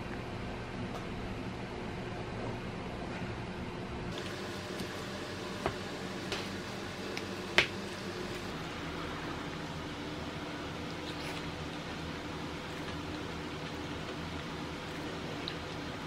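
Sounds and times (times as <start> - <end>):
steady low hum: 0.0 - 16.0
spoon mixing rice squishing: 10.7 - 16.0.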